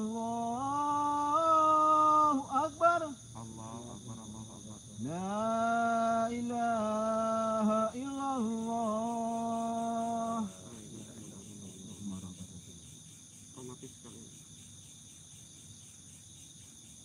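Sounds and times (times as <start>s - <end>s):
man chanting call to prayer: 0.0s - 12.8s.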